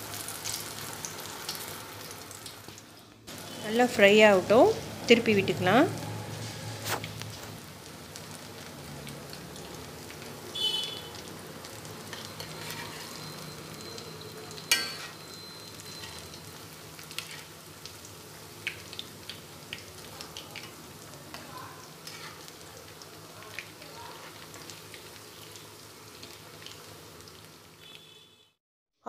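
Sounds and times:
deep-frying oil sizzling: 0.0s - 28.4s
spatula clinking against a pan: 14.6s - 15.3s
metal spatula clattering: 14.7s - 15.2s.

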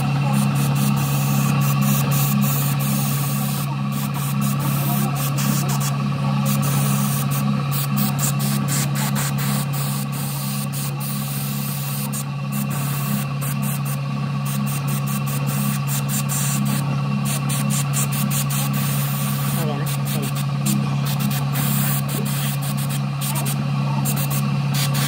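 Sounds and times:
compressor motor hum: 0.0s - 25.0s
paint spray hiss: 0.3s - 25.0s.

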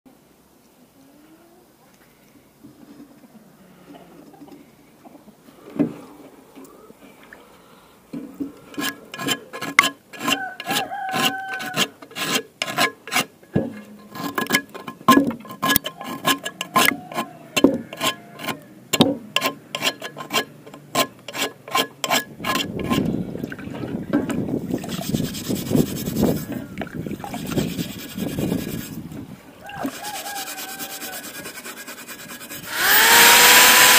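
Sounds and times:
gritty wet scrubbing: 8.3s - 33.9s
frying pan being scraped: 8.7s - 18.6s, 19.4s - 23.1s, 24.8s - 26.5s, 27.2s - 29.0s, 29.9s - 32.7s
pan squeaks: 8.8s - 13.1s, 14.0s - 18.7s, 29.7s - 32.6s.

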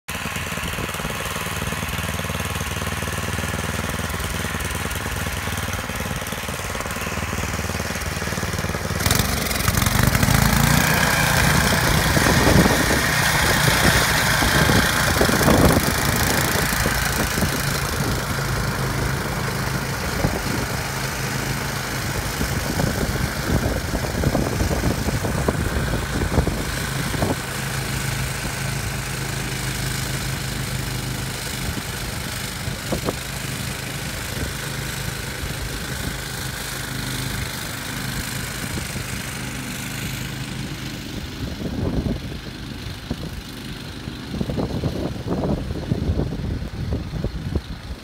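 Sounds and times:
snowblower engine running: 0.0s - 48.0s
snow throwing hiss: 6.4s - 36.9s.

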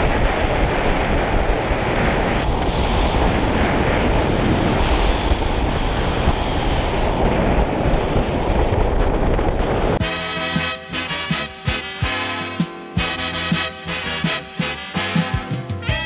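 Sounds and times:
wind buffeting microphone: 0.0s - 10.0s
swing music with a beat: 10.0s - 16.0s.

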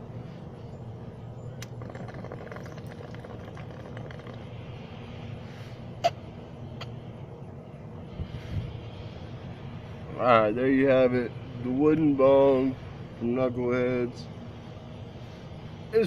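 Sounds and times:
water bubbling in a bong: 1.6s - 4.7s.

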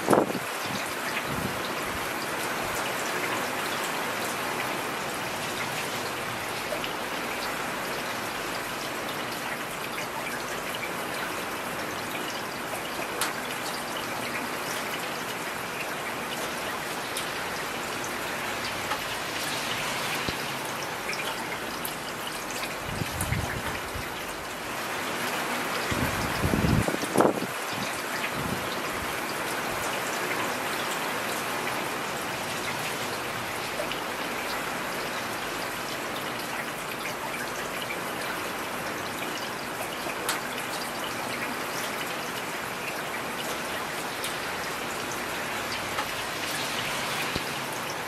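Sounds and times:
raindrop ticks: 12.0s - 15.2s, 15.8s - 20.5s, 39.3s - 47.6s
heavy rain hissing: 17.0s - 21.1s, 44.0s - 48.0s.

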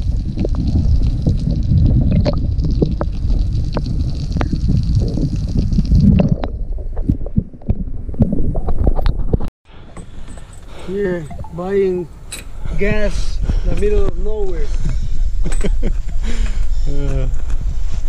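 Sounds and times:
muffled underwater rumble: 0.0s - 9.4s
underwater clicks and ticks: 0.0s - 9.5s.

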